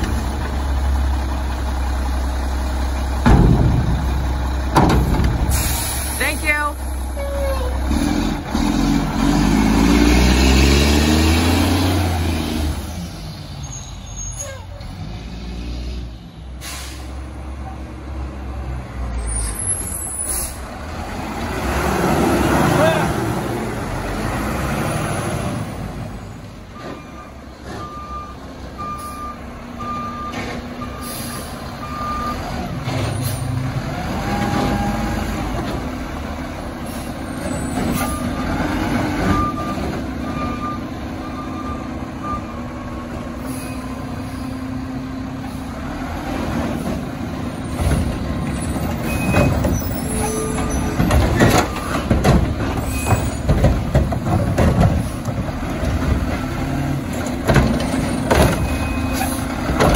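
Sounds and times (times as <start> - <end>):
garbage truck running: 0.0 - 59.9
knocks and clatter of cart tipping: 47.8 - 56.5, 57.1 - 59.9.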